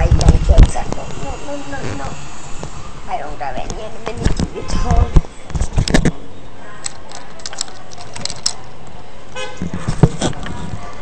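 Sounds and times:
scattered clicks: 6.8s - 9.0s.

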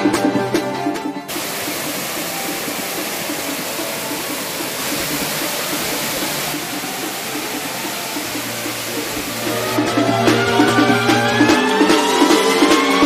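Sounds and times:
waterfall rushing onto rocks: 1.3s - 11.6s.

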